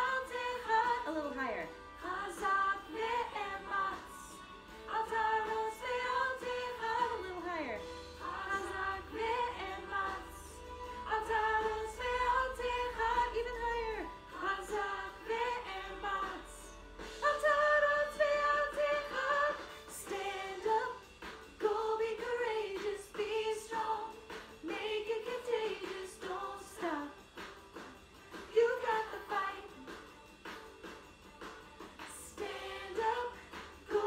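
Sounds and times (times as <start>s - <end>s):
woman singing: 0.0s - 21.0s, 28.5s - 29.9s.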